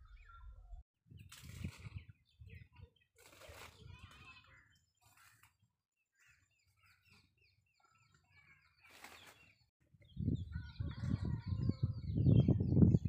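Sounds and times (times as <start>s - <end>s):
small birds chirping: 0.0s - 13.0s
wind buffeting microphone: 9.9s - 13.0s.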